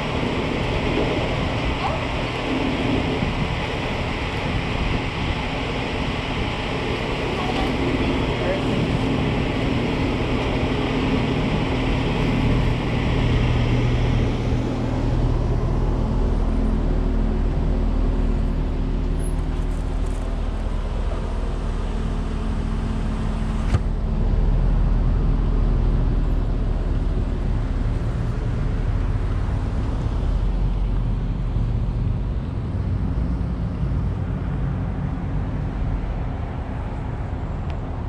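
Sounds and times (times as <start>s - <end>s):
car engine running: 0.0s - 37.6s.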